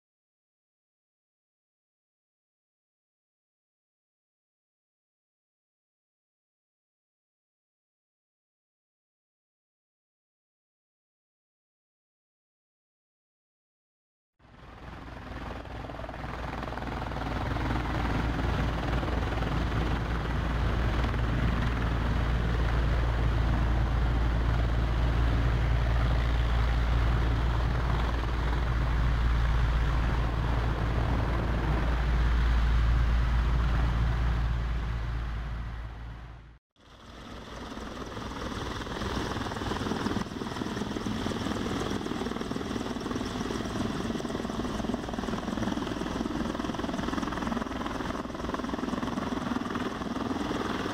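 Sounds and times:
helicopter rotor rumble: 14.4 - 50.9.

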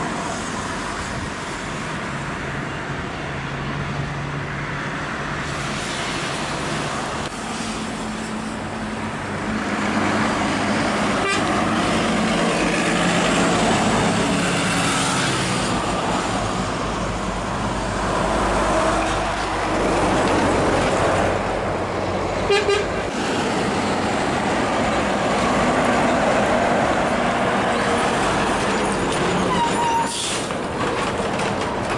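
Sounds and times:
diesel trucks driving past: 0.0 - 31.9
tyre noise on road: 0.0 - 31.9.

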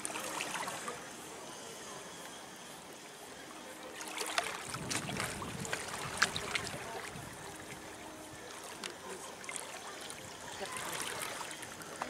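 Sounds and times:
water lapping at shore: 0.0 - 12.0
sharp splashes: 3.9 - 7.7.

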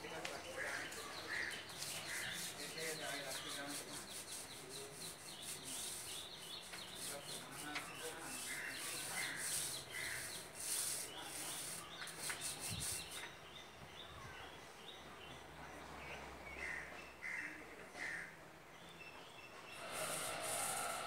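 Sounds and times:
paint roller rubbing on wall: 0.6 - 13.2, 19.8 - 21.0.

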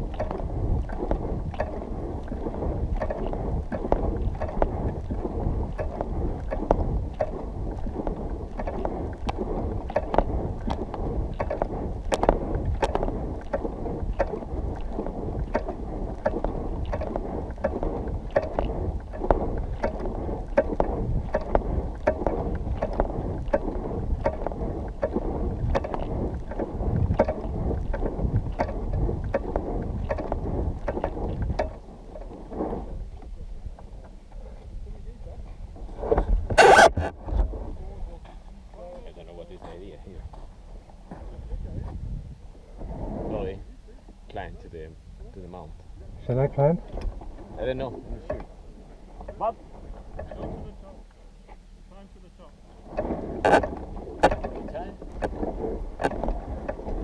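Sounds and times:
muffled rumbling: 0.0 - 57.0.

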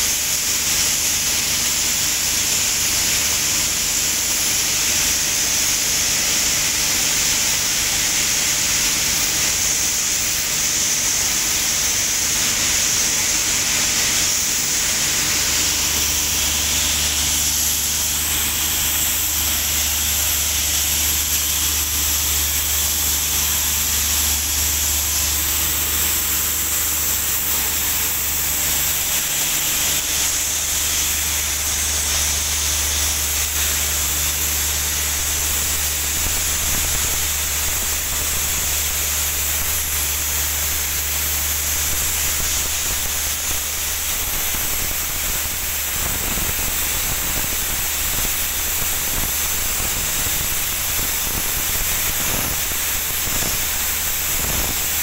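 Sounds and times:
compressed air hissing from hose: 8.2 - 55.0
air compressor engine hum: 9.1 - 38.1.

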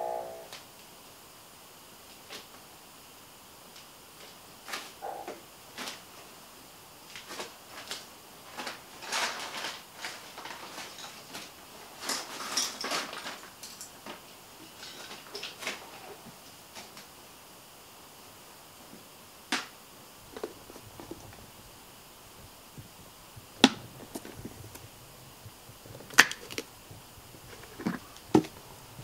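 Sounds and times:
rustling: 3.7 - 29.0
clicks and knocks of handling objects: 7.1 - 17.1, 25.9 - 26.7, 27.4 - 28.6.

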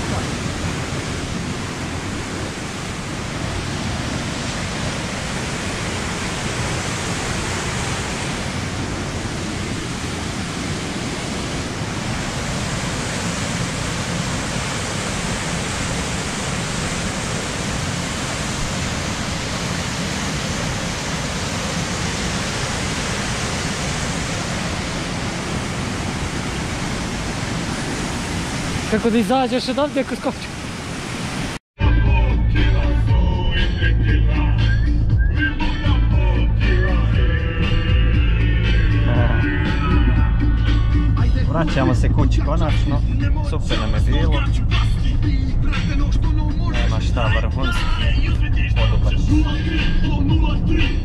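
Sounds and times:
waterfall rushing: 0.0 - 31.6.

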